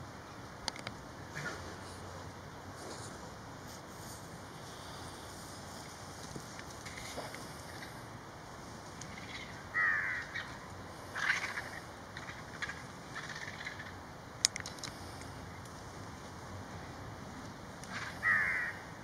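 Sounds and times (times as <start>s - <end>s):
vultures rasping calls: 9.0s - 14.0s, 17.9s - 18.9s.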